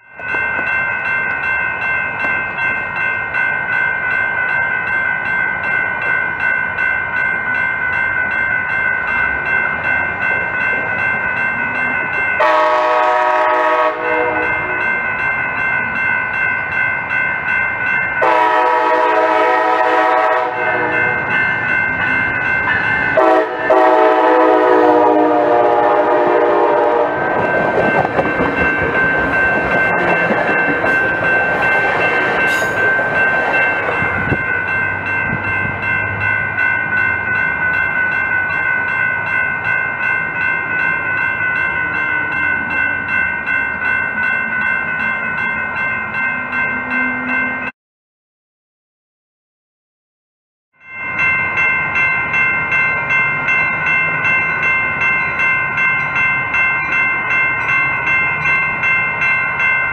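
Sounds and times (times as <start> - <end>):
crossing bells ringing: 0.0 - 47.7, 50.8 - 59.9
rumble of passing train cars: 0.0 - 47.7, 50.8 - 59.9
locomotive horn blasts: 12.4 - 14.6, 18.2 - 21.2, 23.2 - 27.2.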